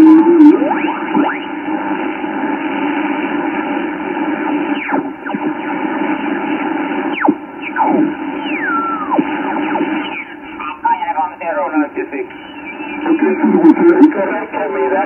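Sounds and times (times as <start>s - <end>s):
radio static: 0.0s - 15.0s
radio whistles falling in pitch: 7.1s - 10.4s, 12.4s - 13.4s.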